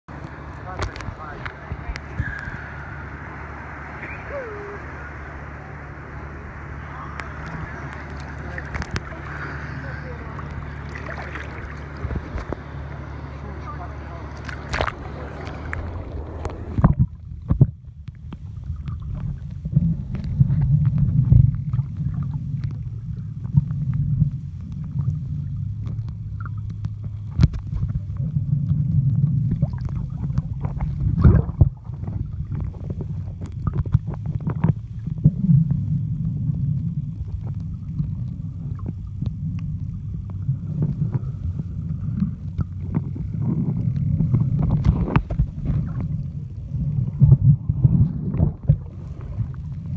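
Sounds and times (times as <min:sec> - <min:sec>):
underwater rumble of moving water: 0:00.0 - 0:49.9
clicks and knocks underwater: 0:00.1 - 0:02.7, 0:07.2 - 0:13.1, 0:14.2 - 0:49.9.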